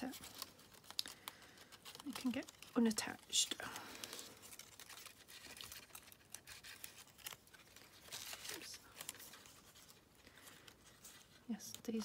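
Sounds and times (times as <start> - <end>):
paper ticks and snaps: 0.0 - 9.6
paper rustling and crinkling: 0.0 - 12.0.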